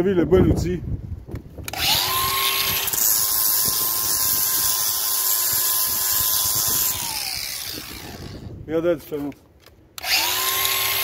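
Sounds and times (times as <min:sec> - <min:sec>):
angle grinder whining on brick: 0:01.7 - 0:08.6, 0:10.0 - 0:11.0.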